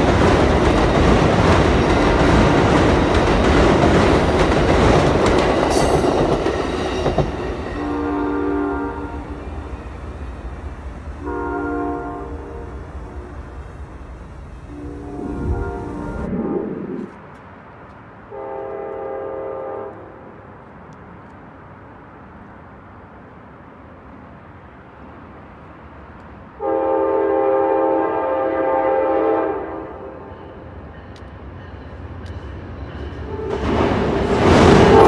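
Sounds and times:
low train rumble: 0:00.0 - 0:35.0
train air horn blasts: 0:07.8 - 0:09.6, 0:11.2 - 0:13.4, 0:14.7 - 0:16.3, 0:18.3 - 0:20.2, 0:26.6 - 0:30.3, 0:33.3 - 0:33.6.

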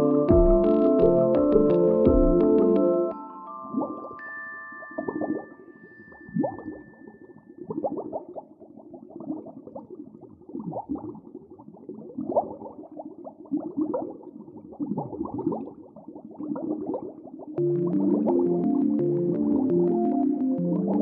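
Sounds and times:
warbling pitch glides: 0:03.6 - 0:08.3
muffled underwater bubbling: 0:06.3 - 0:21.0.

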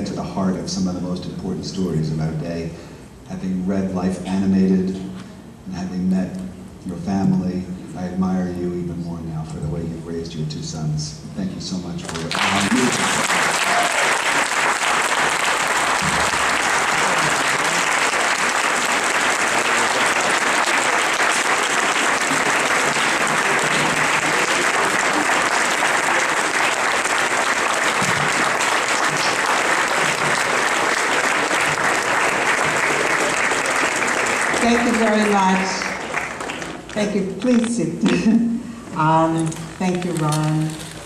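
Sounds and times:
audience applauding: 0:12.0 - 0:37.1.

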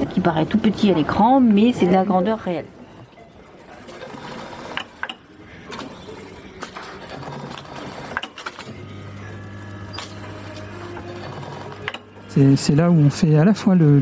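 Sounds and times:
sewing machine humming: 0:03.6 - 0:13.5.

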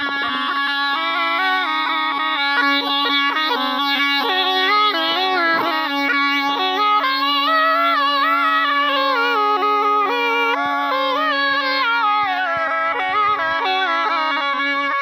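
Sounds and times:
reed pipe melody: 0:00.0 - 0:15.0.

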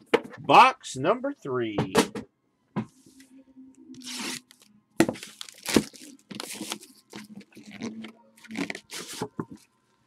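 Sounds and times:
faint steady hum: 0:00.5 - 0:10.0.

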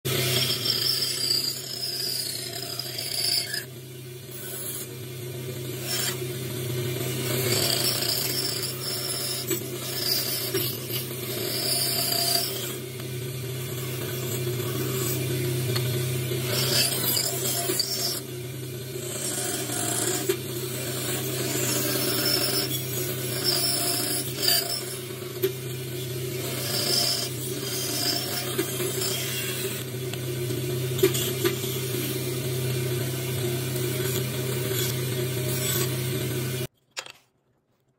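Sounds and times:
bandsaw motor hum: 0:00.1 - 0:36.7
saw blade rasping through wood: 0:07.2 - 0:12.9, 0:16.4 - 0:18.3, 0:19.1 - 0:25.1, 0:26.3 - 0:30.0.

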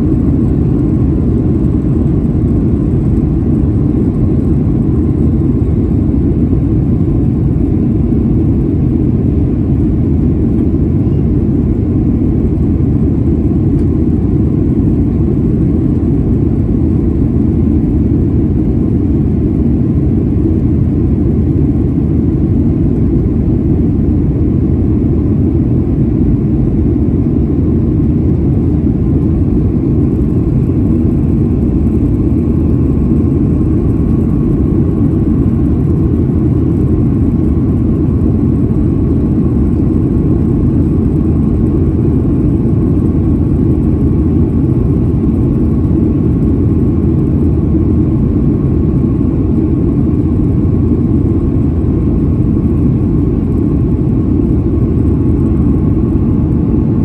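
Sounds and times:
airplane cabin engine drone: 0:00.0 - 0:57.0.

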